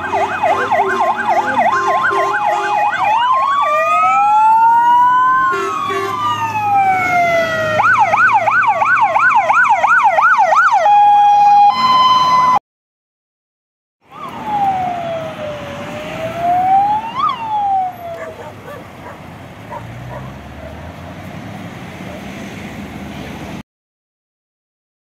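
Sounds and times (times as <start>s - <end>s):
fire engine siren wailing: 0.0s - 12.6s, 14.0s - 19.2s
truck engine and road noise: 0.0s - 12.6s, 14.0s - 23.6s.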